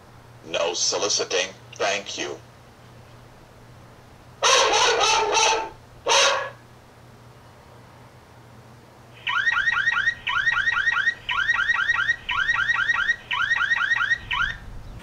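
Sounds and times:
electronic alarm siren chirps: 9.2s - 14.7s.

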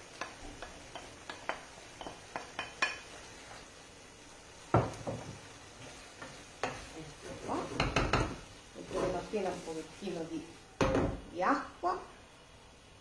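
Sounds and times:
faint sizzling: 0.0s - 13.0s
plate and spoon knocking pan: 7.7s - 8.4s.

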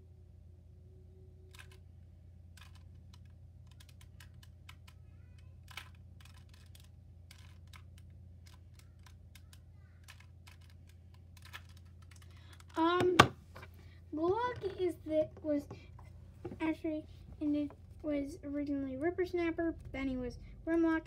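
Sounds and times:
low steady hum: 0.0s - 21.0s
plastic toy figures clicking: 2.6s - 13.3s.

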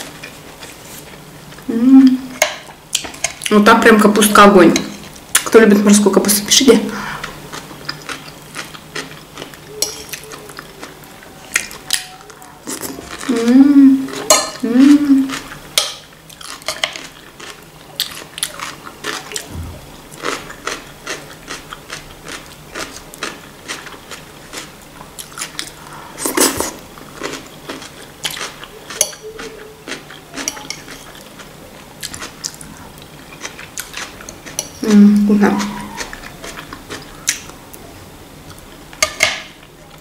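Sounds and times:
fork clinking on china plate: 9.8s - 10.1s
short hummed voice sounds: 19.5s - 20.0s.

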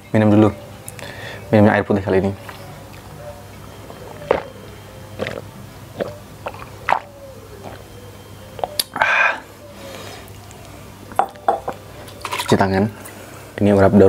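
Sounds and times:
breathy exhale: 1.0s - 1.5s, 9.0s - 10.3s
person gulping water: 4.1s - 4.5s, 5.2s - 7.8s.

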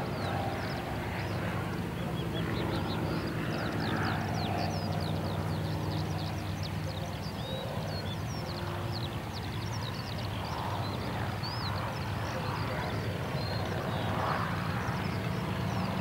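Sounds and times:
aircraft engines droning: 0.0s - 16.0s.

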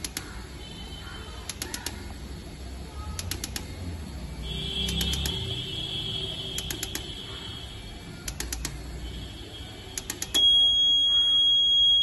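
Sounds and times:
clusters of sharp clicks: 0.0s - 0.4s, 1.4s - 2.2s, 3.2s - 3.8s, 4.8s - 5.5s, 6.5s - 7.2s, 8.2s - 8.9s, 9.9s - 10.5s
steady low hum: 0.0s - 12.0s
steady high tone: 9.0s - 12.0s.

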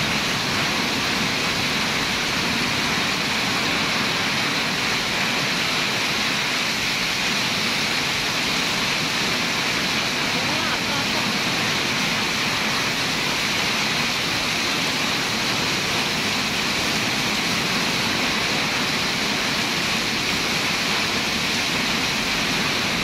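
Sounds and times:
heavy rain pouring: 0.0s - 23.0s.

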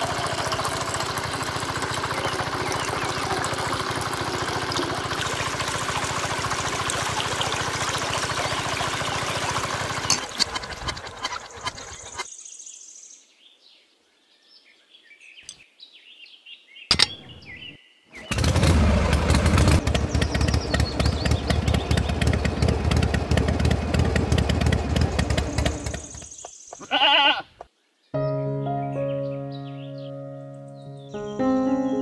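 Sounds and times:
small engine chattering: 0.0s - 12.3s, 18.2s - 26.5s
sheep bleating: 26.8s - 27.6s.

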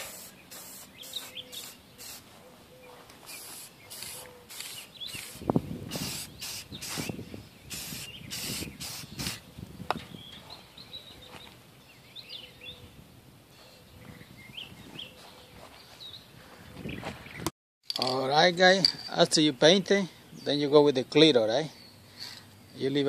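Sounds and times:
spray paint can hissing: 0.0s - 2.3s, 3.3s - 9.4s
birds chirping faintly: 0.0s - 5.7s.

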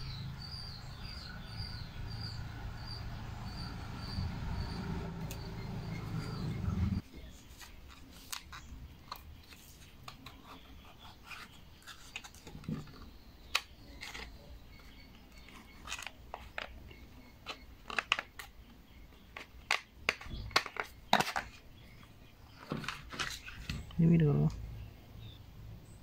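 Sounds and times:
plastic parts clicking and tapping: 12.1s - 21.6s.

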